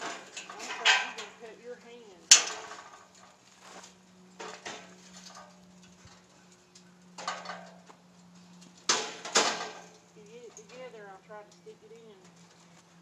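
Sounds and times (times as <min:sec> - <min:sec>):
metal clanks ringing: 0:00.0 - 0:01.6.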